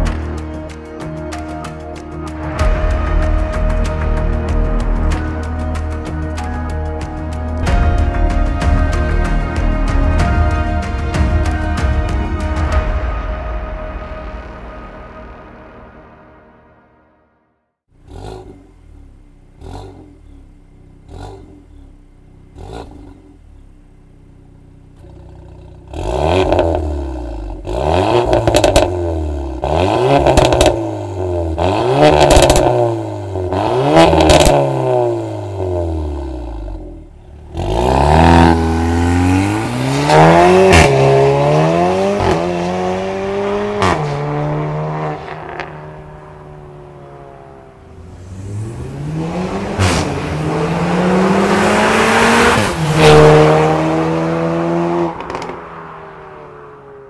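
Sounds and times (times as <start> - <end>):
exhaust cracks: 17.9 - 42.6, 55.0 - 55.9
car engine revving: 17.9 - 57.0
car accelerating through gears: 25.1 - 56.8.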